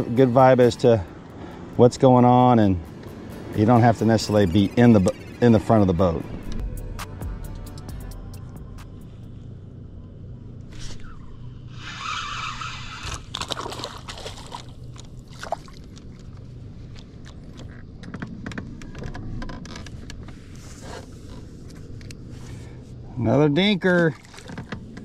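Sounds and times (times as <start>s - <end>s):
steady low hum: 0.0s - 25.0s
fish splashing in water: 12.4s - 16.4s.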